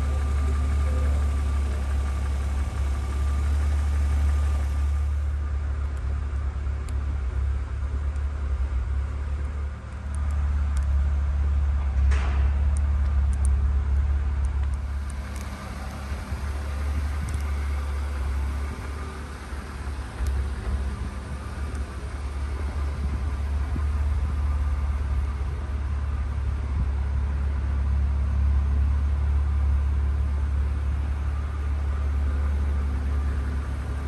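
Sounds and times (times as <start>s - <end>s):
car engine idling: 0.0s - 34.0s.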